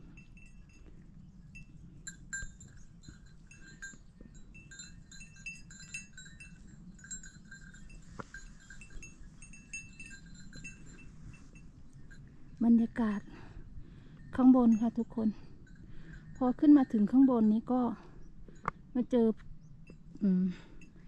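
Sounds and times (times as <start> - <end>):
goat bells clinking: 0.0 - 13.4, 14.0 - 18.8
low steady rumble: 0.0 - 21.0.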